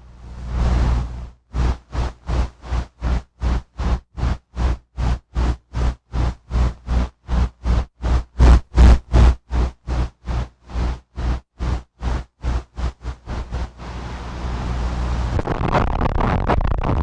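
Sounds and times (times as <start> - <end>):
noise pulses with deep thumps: 0.2 - 17.0.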